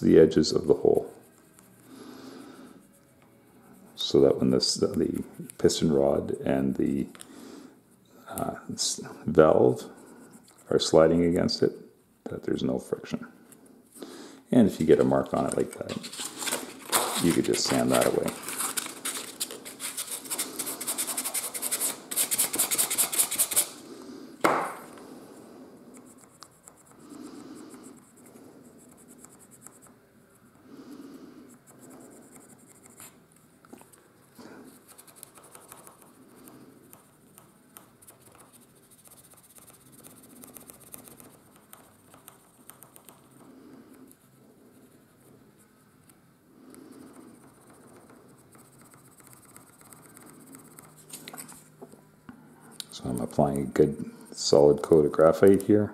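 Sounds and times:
pencil scratching: 14.9s - 23.8s, 25.9s - 30.0s, 31.5s - 33.2s, 34.7s - 46.1s, 46.7s - 51.6s
sanding wood on abrasive paper: 19.8s - 23.7s.

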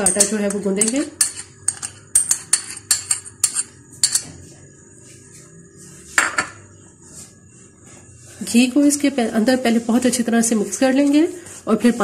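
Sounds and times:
metal spoon scraping glass bowl: 0.0s - 4.4s.

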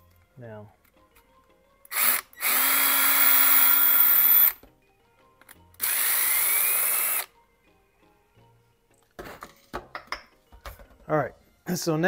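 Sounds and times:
cordless drill whining: 1.9s - 4.6s, 5.8s - 7.3s.

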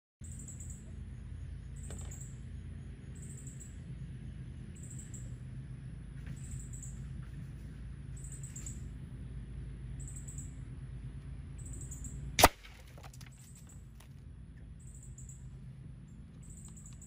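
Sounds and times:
electric fan humming: 0.3s - 12.8s
air rifle shot crack: 12.4s - 12.8s.

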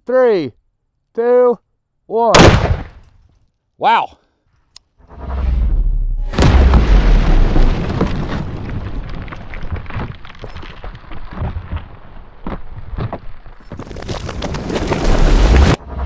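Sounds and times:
explosion deep boom rumbling: 5.1s - 13.0s.

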